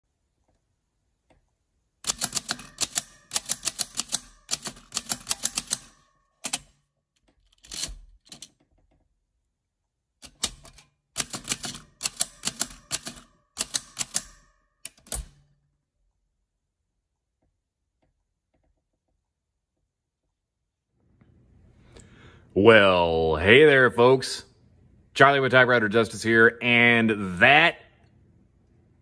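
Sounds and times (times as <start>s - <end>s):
typewriter typing: 2.0s - 6.8s, 7.4s - 8.6s, 10.2s - 15.5s.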